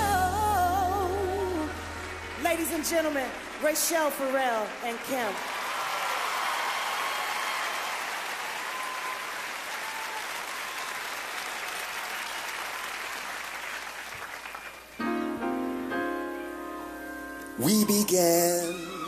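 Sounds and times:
piano playing sustained chords: 0:00.0 - 0:04.9, 0:15.0 - 0:19.0
audience applauding: 0:01.6 - 0:15.3.

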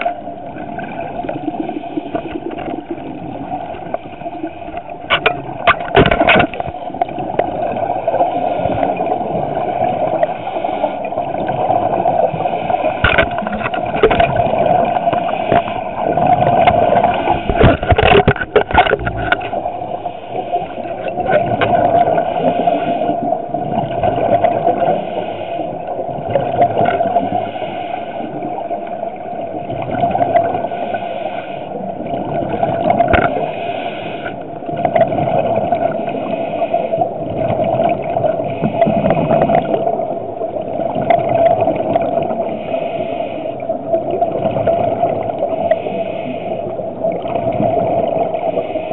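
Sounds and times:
bubbles gurgling: 0:00.0 - 0:25.0, 0:25.8 - 0:27.4, 0:28.3 - 0:30.7, 0:31.8 - 0:33.5, 0:34.6 - 0:42.6, 0:43.7 - 0:45.8, 0:46.8 - 0:48.7
underwater hum: 0:00.0 - 0:48.9
camera housing knocks and scrapes: 0:05.1 - 0:06.6
scuba regulator breathing: 0:12.2 - 0:14.1, 0:14.8 - 0:21.2, 0:21.8 - 0:23.4, 0:24.7 - 0:26.0, 0:27.1 - 0:28.5, 0:30.6 - 0:32.0, 0:33.1 - 0:34.6, 0:35.9 - 0:37.3, 0:38.3 - 0:39.8, 0:42.3 - 0:43.8, 0:45.4 - 0:47.1, 0:48.2 - 0:48.9.

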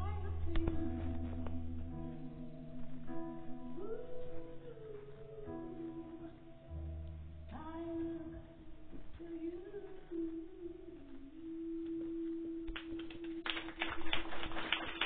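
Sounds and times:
woman singing gospel song: 0:00.0 - 0:06.5, 0:07.5 - 0:13.6
soft backing music: 0:00.0 - 0:15.0
people clapping: 0:12.7 - 0:15.0.

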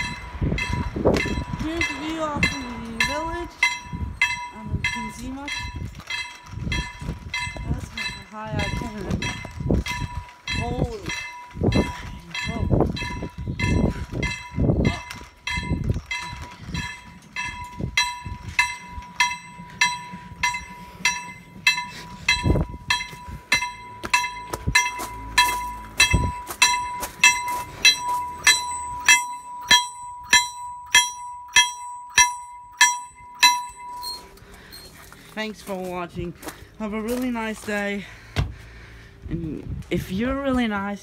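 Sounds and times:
level crossing bell ringing: 0:00.0 - 0:35.1.

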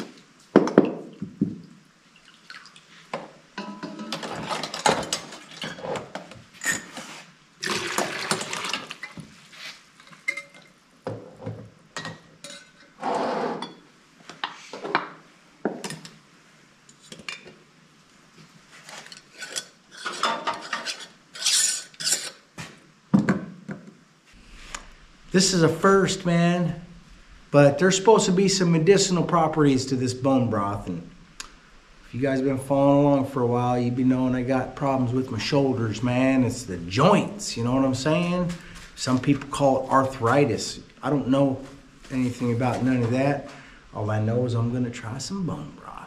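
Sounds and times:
glass jars and pots clinking: 0:03.6 - 0:06.0, 0:10.2 - 0:10.8, 0:12.0 - 0:13.0.

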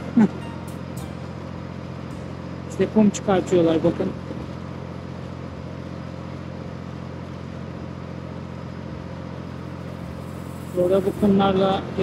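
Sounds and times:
speedboat engine droning: 0:00.0 - 0:06.7, 0:09.4 - 0:12.0.

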